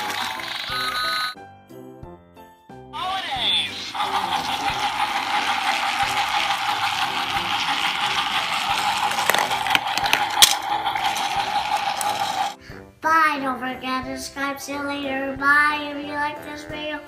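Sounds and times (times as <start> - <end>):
toy train motor whine: 0.0 - 1.4, 3.6 - 12.6
plastic ball clicking down chute: 4.0 - 12.6.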